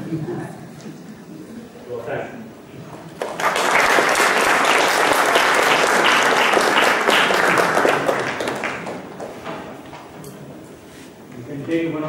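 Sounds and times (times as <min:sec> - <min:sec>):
audience applauding: 0:03.2 - 0:09.7.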